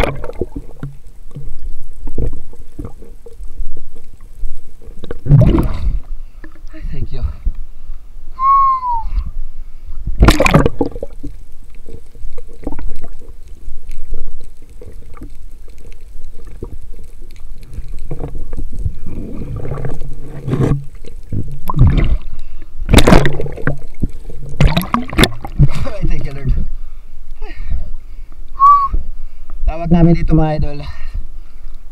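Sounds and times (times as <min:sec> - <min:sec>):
water splashing: 0:00.0 - 0:06.8, 0:10.1 - 0:26.7
water gurgling and sloshing: 0:00.0 - 0:08.3, 0:09.2 - 0:28.4.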